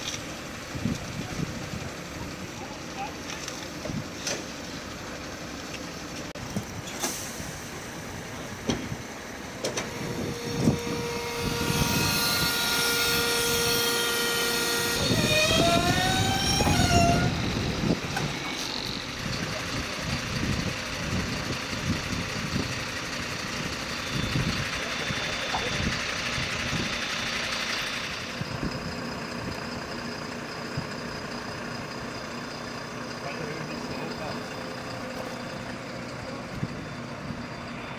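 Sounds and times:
engine mechanical hum: 0.0s - 37.9s
hydraulic whine: 3.3s - 21.2s, 21.8s - 31.0s.

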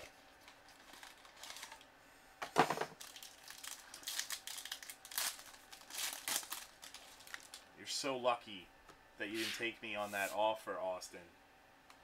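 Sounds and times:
foil wrapper crinkling: 0.0s - 1.9s, 2.9s - 7.7s.

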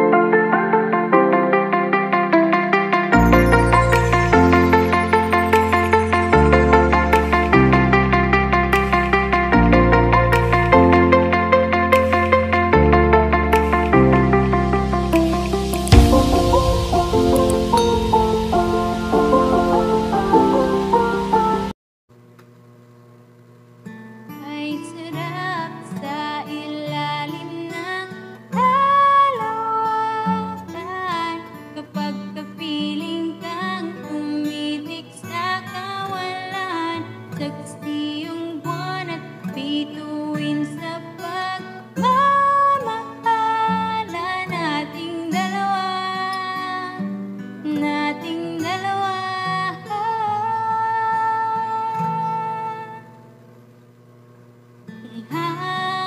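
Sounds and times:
acoustic guitar: 0.0s - 21.7s, 23.8s - 53.5s, 54.8s - 56.0s
woman singing: 24.4s - 53.2s, 55.0s - 56.0s.

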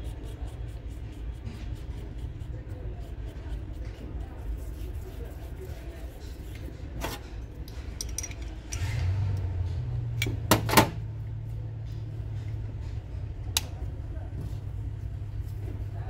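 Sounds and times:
steady low hum: 0.0s - 16.0s
spanner clinking against metal: 7.6s - 8.9s.

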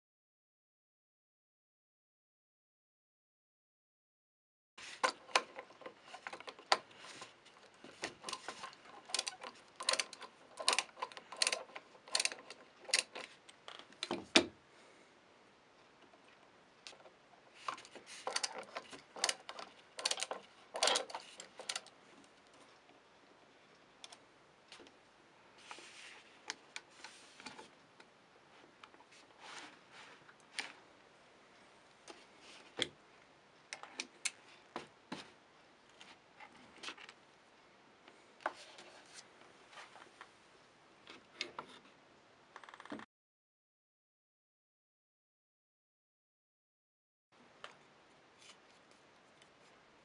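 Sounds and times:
screwdriver clicks and scrapes: 5.0s - 14.1s, 17.6s - 21.9s.

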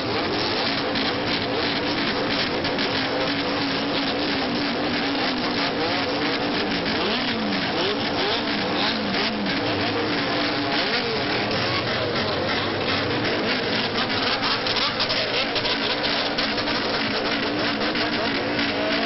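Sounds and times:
engines revving: 0.0s - 19.0s
exhaust rasp: 0.0s - 19.0s.

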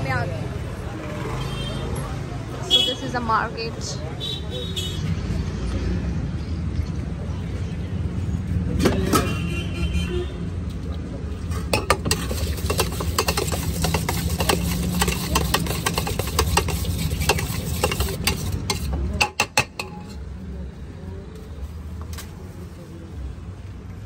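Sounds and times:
traffic rumble: 0.0s - 24.0s
spoon scraping steel bowl: 11.7s - 20.3s.

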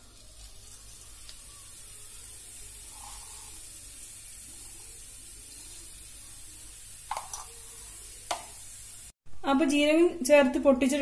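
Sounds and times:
seeds sizzling in hot oil: 0.0s - 9.2s.

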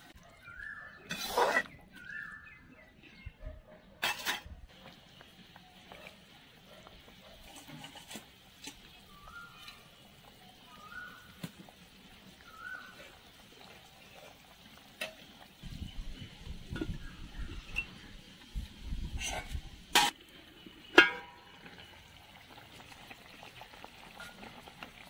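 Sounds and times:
metal skimmer scraping a pan: 1.0s - 1.9s, 4.0s - 5.0s, 7.3s - 9.9s, 19.0s - 20.2s, 20.8s - 21.9s, 24.1s - 24.8s.

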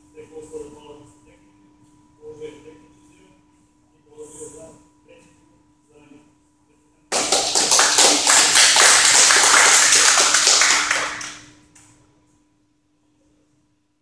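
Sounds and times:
small group applauding: 7.1s - 11.6s.

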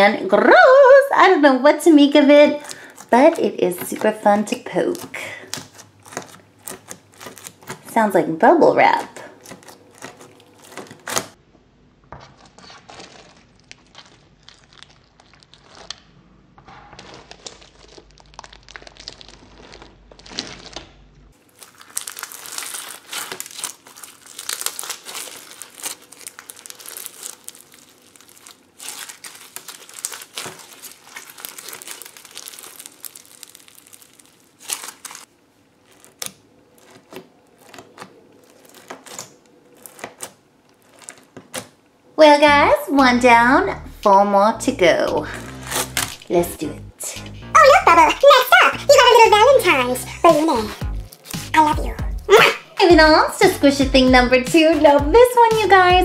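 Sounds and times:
slime crackling and popping: 2.0s - 8.1s, 8.8s - 11.4s, 12.2s - 41.9s, 45.0s - 46.4s, 50.4s - 51.6s.

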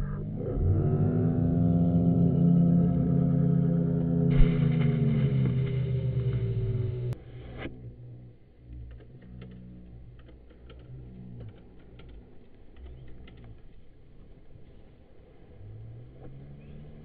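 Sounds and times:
light irregular clicking: 8.7s - 14.4s.

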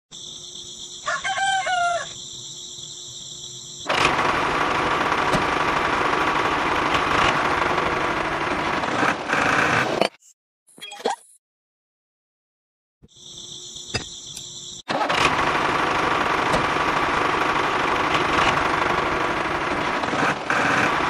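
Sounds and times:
rooster crowing: 1.0s - 2.2s.

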